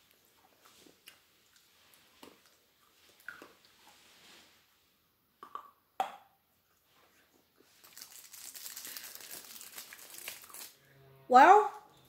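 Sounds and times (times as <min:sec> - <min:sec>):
candy crunching: 0:07.7 - 0:10.8.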